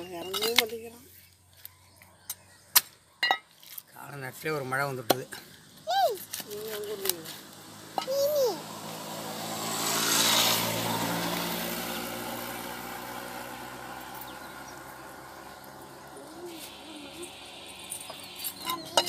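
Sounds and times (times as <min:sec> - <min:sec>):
vehicle driving past: 0:07.2 - 0:19.0.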